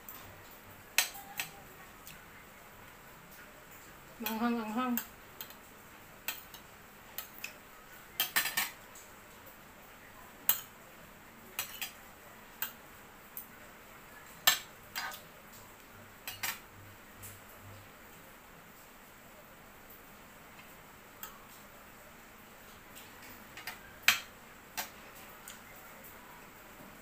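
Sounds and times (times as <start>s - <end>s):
cutlery clinking on a ceramic plate: 1.0s - 1.6s, 8.2s - 8.8s, 11.6s - 12.0s, 14.4s - 15.2s, 16.2s - 16.6s, 23.5s - 25.0s.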